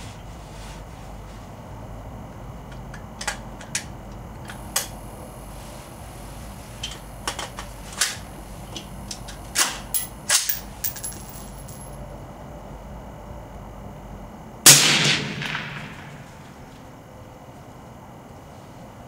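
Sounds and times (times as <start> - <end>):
suppressed rifle shot: 14.7 - 16.3.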